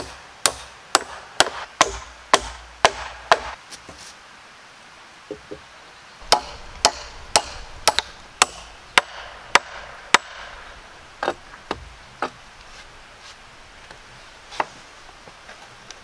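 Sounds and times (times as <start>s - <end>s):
hatchet chopping wood: 0.0s - 3.6s, 6.2s - 12.4s.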